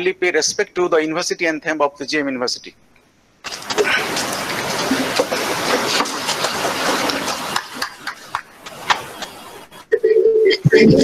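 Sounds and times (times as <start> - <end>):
people shuffling and rustling: 3.4 - 9.9
chairs knocking and scraping: 3.5 - 9.4.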